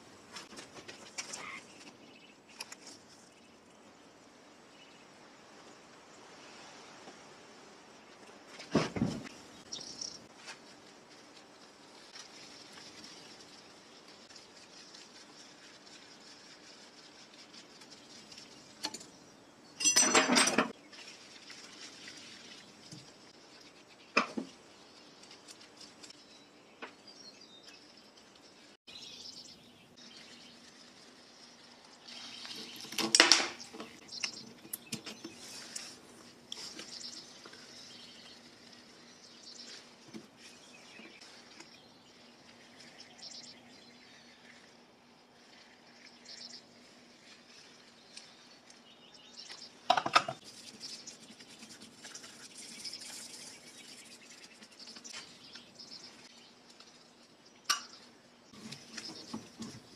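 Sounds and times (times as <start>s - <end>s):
metal parts clinking and rattling: 19.8s - 20.7s.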